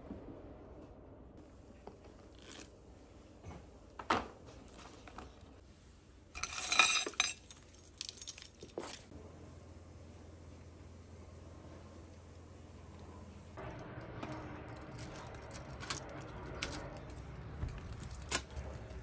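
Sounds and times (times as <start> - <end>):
keys jangling: 6.4 - 9.1, 14.7 - 18.7.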